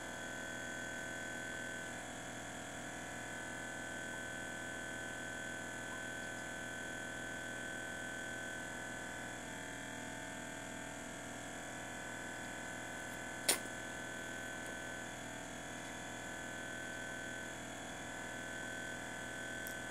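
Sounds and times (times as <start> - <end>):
aquarium equipment hum: 0.0 - 19.9
sharp click: 13.4 - 13.7.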